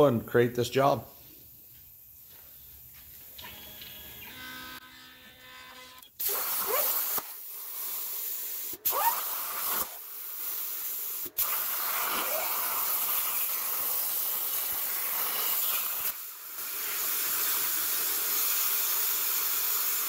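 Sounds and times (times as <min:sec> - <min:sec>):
plasma torch hissing: 0:06.2 - 0:20.0.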